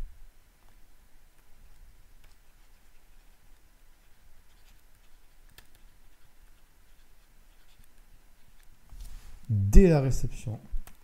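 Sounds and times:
small ticks: 0:00.6 - 0:08.8
stylus scratching on tablet: 0:01.8 - 0:09.3.

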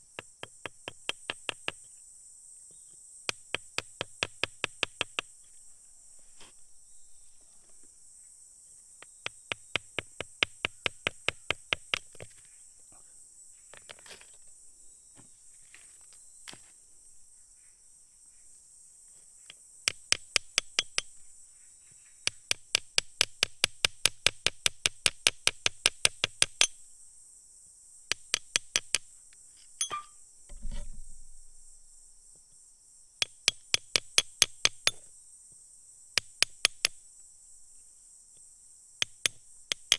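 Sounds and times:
dull low thump: 0:30.5 - 0:31.8.

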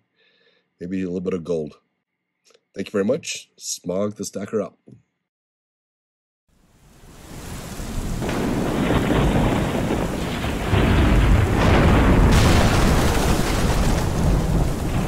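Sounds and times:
steady rain: 0:06.6 - 0:15.0
rolling thunder: 0:07.2 - 0:15.0
sharp thunder crash: 0:07.3 - 0:15.0.

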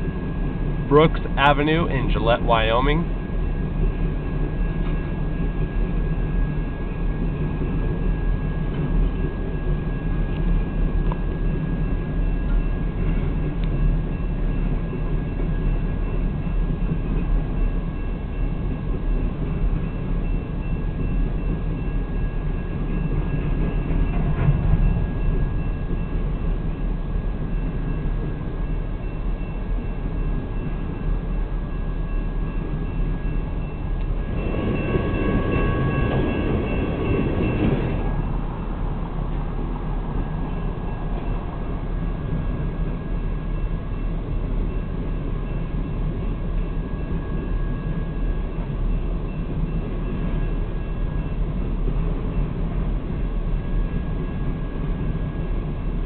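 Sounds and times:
freight train cars rolling: 0:00.0 - 0:56.0
steady high tone: 0:00.8 - 0:03.6, 0:20.6 - 0:51.7.

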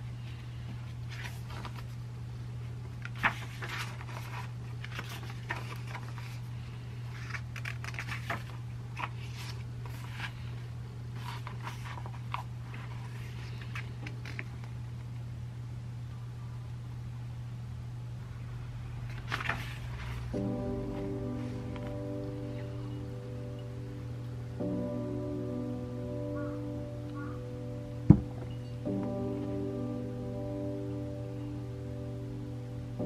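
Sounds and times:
steady low hum: 0:00.0 - 0:33.0
book pages rustling: 0:00.8 - 0:02.0, 0:03.0 - 0:14.8, 0:19.0 - 0:22.7.

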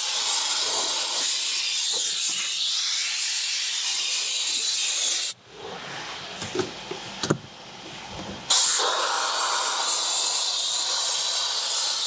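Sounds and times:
compressed-air blow gun hissing: 0:00.0 - 0:05.4, 0:08.5 - 0:12.0.

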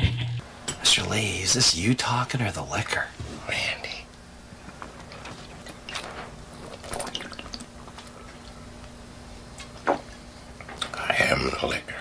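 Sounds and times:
steady low hum: 0:00.0 - 0:12.0
liquid sloshing in bottle: 0:04.8 - 0:08.6.

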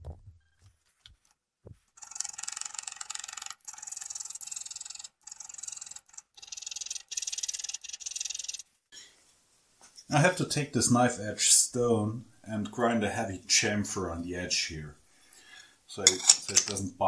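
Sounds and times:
rapid high-pitched scraper rasping: 0:02.0 - 0:08.6.

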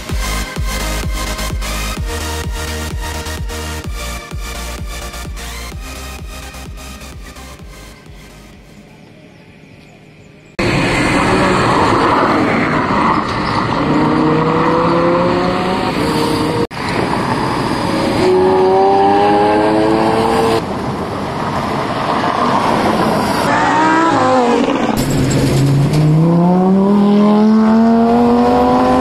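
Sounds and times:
sports car engine revving: 0:13.0 - 0:16.7, 0:17.8 - 0:20.6, 0:23.5 - 0:29.0.

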